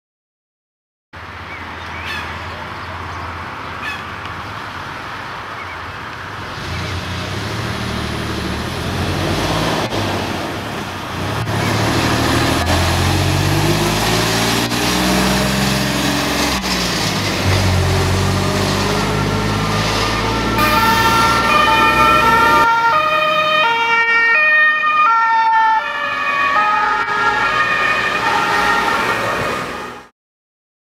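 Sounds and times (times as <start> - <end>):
fire engine diesel engine: 6.0 - 30.1
low two-tone siren: 17.5 - 30.1
higher-pitched two-tone siren: 18.4 - 30.1.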